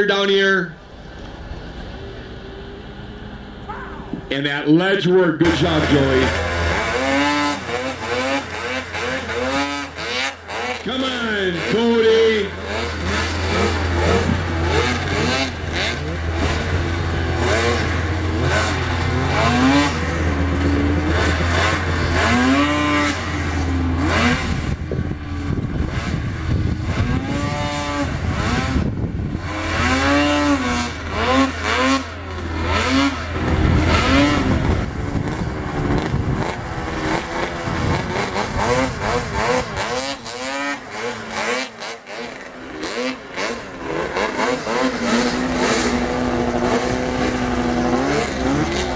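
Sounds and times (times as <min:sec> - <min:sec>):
snowmobile engines revving: 0:00.0 - 0:48.9.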